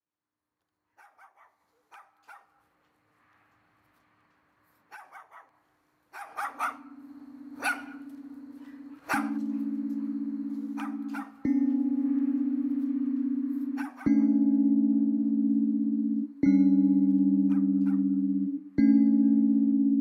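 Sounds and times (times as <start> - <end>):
dog barking: 0.9 - 2.7, 4.9 - 7.0, 7.6 - 8.1, 8.7 - 9.5, 10.8 - 11.4, 13.8 - 14.2, 17.5 - 18.1
low musical drone: 6.8 - 20.0.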